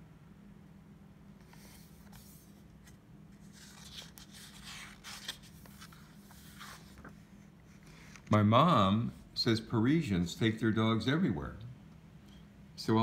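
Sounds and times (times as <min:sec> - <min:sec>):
book pages rustling: 0:01.4 - 0:08.5.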